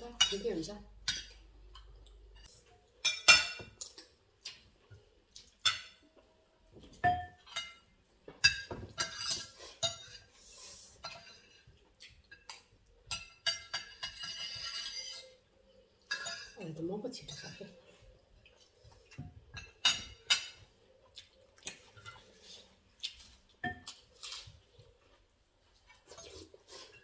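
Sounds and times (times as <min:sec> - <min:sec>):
cutlery clinking on plates: 0:02.4 - 0:04.0, 0:06.8 - 0:10.3, 0:11.0 - 0:15.4, 0:16.0 - 0:16.6, 0:19.1 - 0:20.7.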